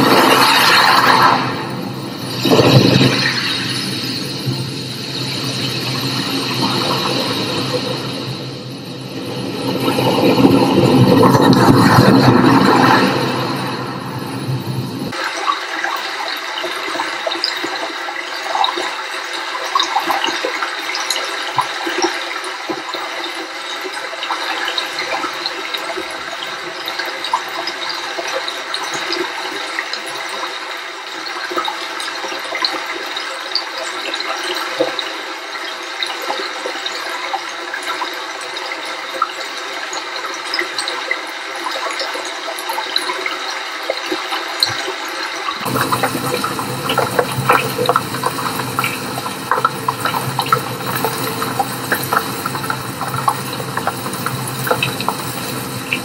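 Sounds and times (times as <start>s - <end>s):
stream pouring over rocks: 36.3s - 56.0s.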